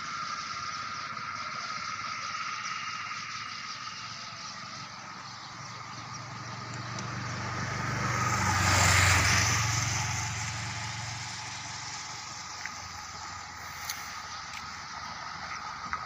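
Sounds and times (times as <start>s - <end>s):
motorcycle engine idling: 0.0s - 16.0s
vehicle passing: 4.9s - 16.0s.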